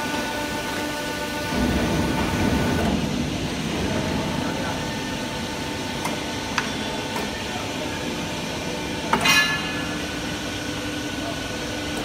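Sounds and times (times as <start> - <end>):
pipe bending machine humming: 0.0 - 12.0
loud metallic clank: 9.1 - 10.0.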